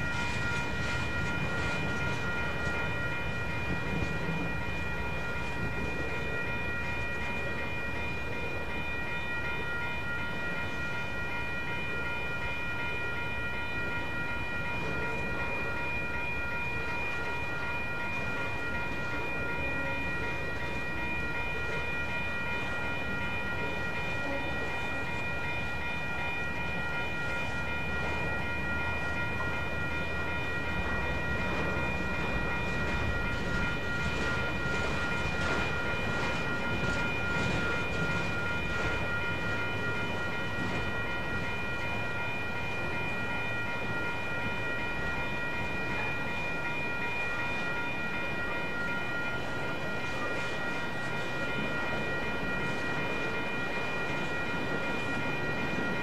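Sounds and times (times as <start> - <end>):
freight train wheels rumbling on rail: 0.0 - 56.0.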